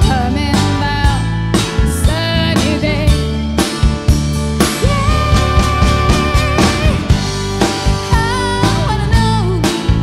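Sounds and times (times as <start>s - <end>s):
woman singing: 0.0s - 3.4s, 4.7s - 10.0s
rock band playing: 0.0s - 10.0s.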